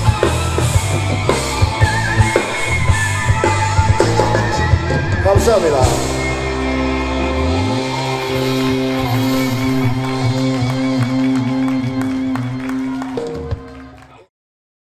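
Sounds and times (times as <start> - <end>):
wavering high tone: 0.0 - 13.4
rock band chord ringing out: 0.0 - 14.0
audience clapping: 6.8 - 14.3.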